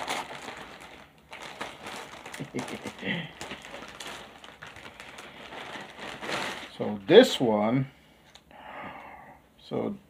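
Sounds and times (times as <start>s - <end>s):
packaging rustling: 0.0s - 7.5s.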